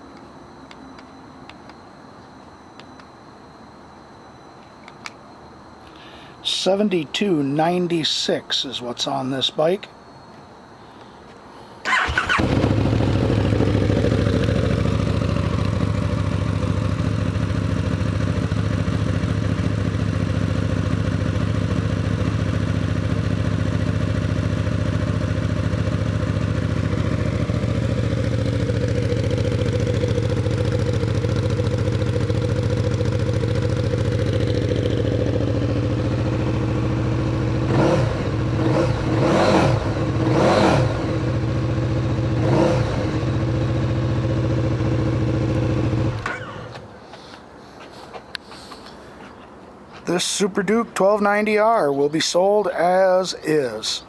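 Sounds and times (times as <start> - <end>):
motorcycle engine idling and revving: 11.9 - 47.0.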